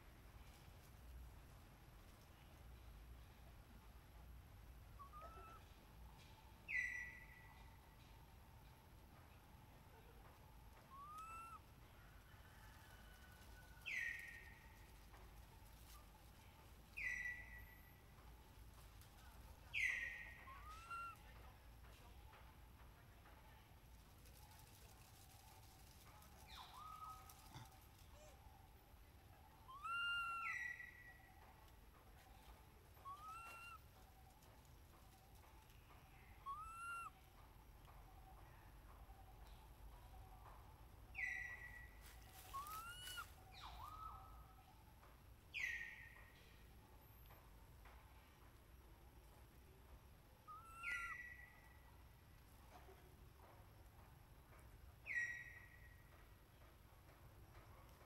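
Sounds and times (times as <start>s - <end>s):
baby monkey coo calls: 5.0s - 5.8s, 10.9s - 11.7s, 19.7s - 21.2s, 26.4s - 28.4s, 29.6s - 31.1s, 33.0s - 33.9s, 36.4s - 37.2s, 42.4s - 44.5s, 50.5s - 51.6s.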